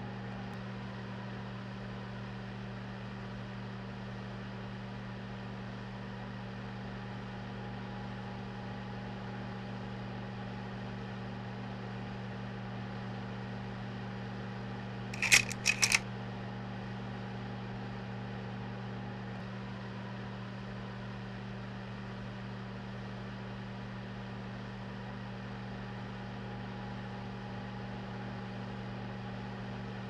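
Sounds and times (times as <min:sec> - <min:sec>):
projector mechanical clicks: 0:15.2 - 0:16.0.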